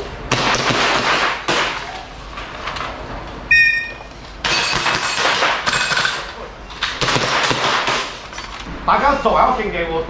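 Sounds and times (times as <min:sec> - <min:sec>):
airsoft pistols firing: 0:00.3 - 0:01.8, 0:04.4 - 0:06.2, 0:06.9 - 0:08.2
shot timer beep: 0:03.5 - 0:04.1.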